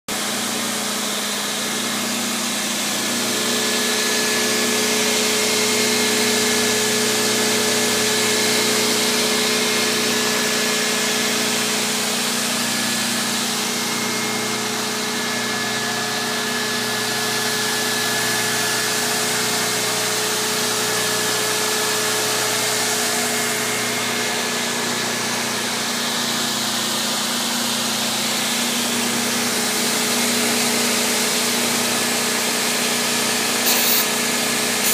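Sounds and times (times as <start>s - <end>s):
spindle shaper humming: 33.6s - 34.1s.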